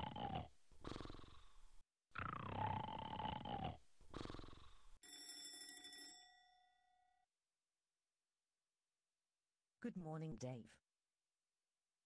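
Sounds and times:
person snoring: 0:00.0 - 0:05.0
bell-like ring: 0:05.0 - 0:07.2.

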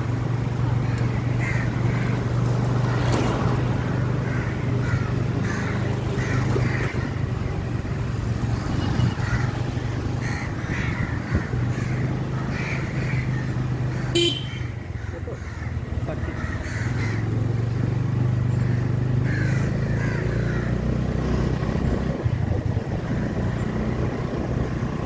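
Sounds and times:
low engine hum: 0:00.0 - 0:25.0
crows cawing: 0:00.7 - 0:03.0, 0:03.8 - 0:07.5, 0:09.1 - 0:17.8, 0:18.6 - 0:20.9.

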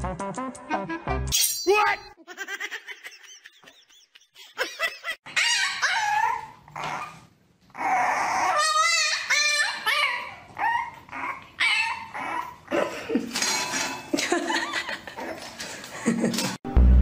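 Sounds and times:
puppy whining and yipping: 0:05.3 - 0:12.7.

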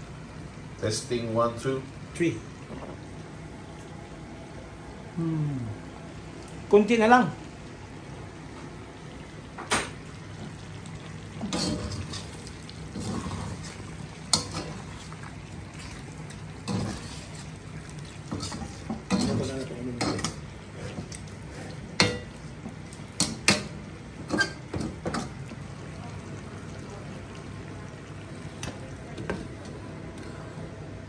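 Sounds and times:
meat frying in sauce: 0:09.0 - 0:29.8.

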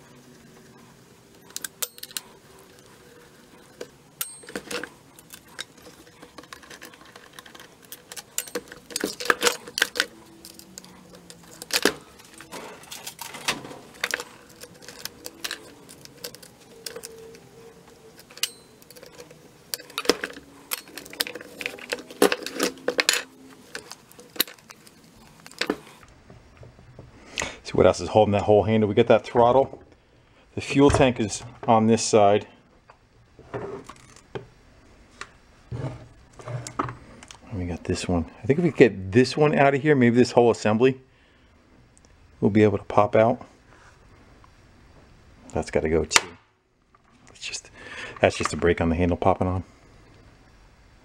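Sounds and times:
hand tools clicking and tapping: 0:01.4 - 0:02.9, 0:03.7 - 0:26.0.

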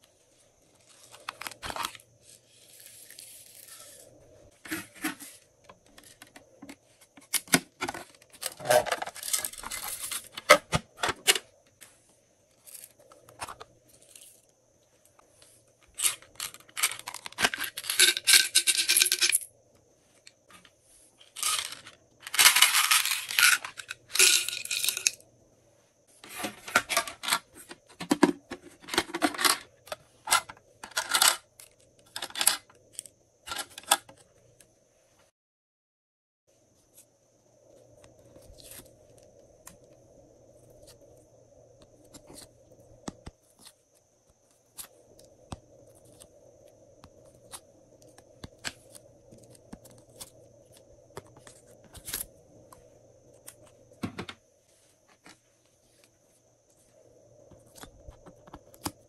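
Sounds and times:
plastic beads rattling: 0:08.5 - 0:10.4, 0:16.0 - 0:19.5, 0:21.3 - 0:25.2.

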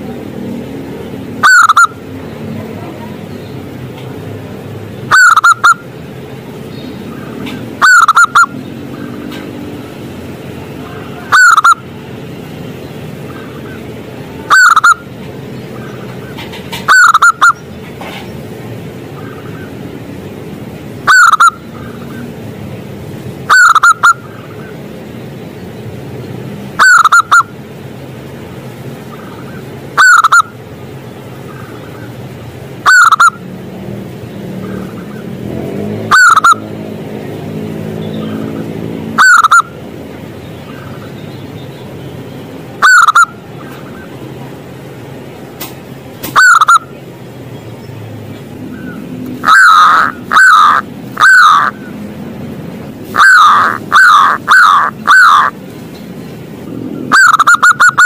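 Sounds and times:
dove cooing: 0:01.4 - 0:01.9, 0:05.1 - 0:05.8, 0:07.4 - 0:09.2, 0:10.8 - 0:11.8, 0:14.5 - 0:15.0, 0:15.8 - 0:17.6, 0:21.1 - 0:22.3, 0:23.5 - 0:24.4, 0:26.8 - 0:27.5, 0:29.2 - 0:30.5, 0:32.8 - 0:33.4, 0:36.1 - 0:36.6, 0:39.2 - 0:39.7, 0:42.8 - 0:44.2, 0:46.4 - 0:46.9, 0:48.7 - 0:52.0, 0:53.0 - 0:55.6, 0:56.9 - 0:58.0.

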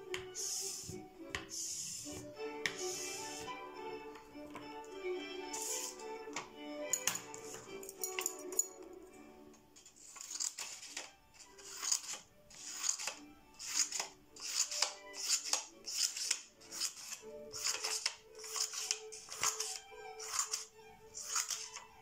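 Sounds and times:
soft background music: 0:00.0 - 0:22.0
scissors snipping paper: 0:09.9 - 0:21.9.

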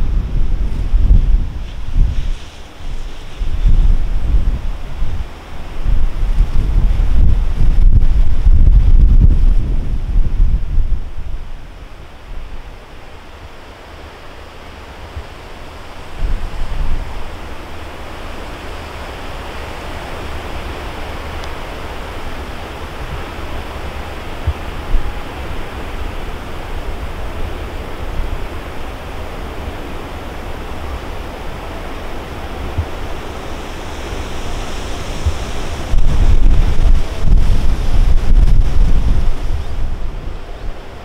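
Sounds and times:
wind buffeting microphone: 0:00.0 - 0:12.9, 0:15.1 - 0:41.0
jet engines roaring: 0:15.7 - 0:41.0.

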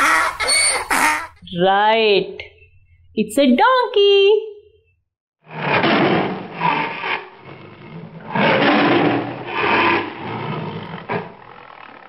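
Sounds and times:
tiger growling and roaring: 0:05.5 - 0:12.0.

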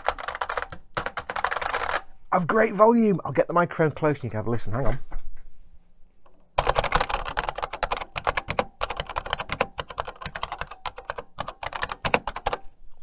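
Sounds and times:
fast clicky keyboard typing: 0:00.0 - 0:02.0, 0:06.6 - 0:12.6.

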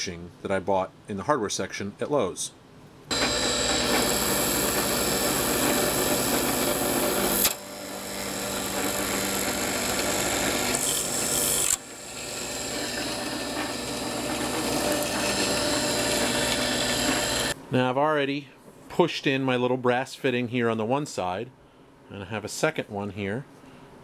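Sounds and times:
drill press boring plastic pipe: 0:03.1 - 0:17.6.

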